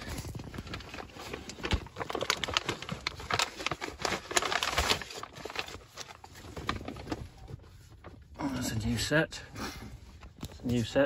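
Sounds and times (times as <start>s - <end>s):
packaging rustling and crackling: 0.0s - 8.4s.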